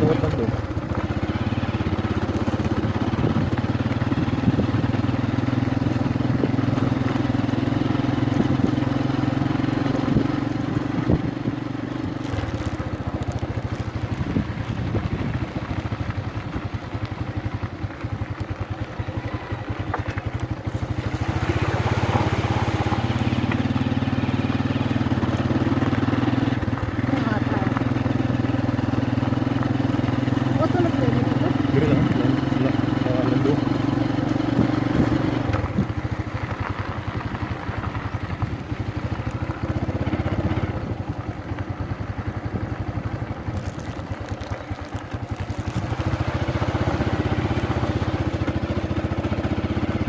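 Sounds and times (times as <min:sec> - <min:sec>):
motorcycle engine running: 0:00.0 - 0:50.0
bike jolting over stones: 0:12.1 - 0:15.5, 0:43.4 - 0:46.6.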